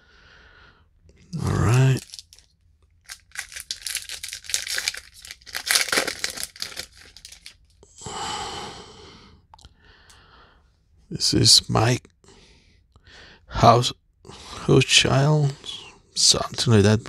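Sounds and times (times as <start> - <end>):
wrapper tearing and crinkling: 1.4 - 7.6.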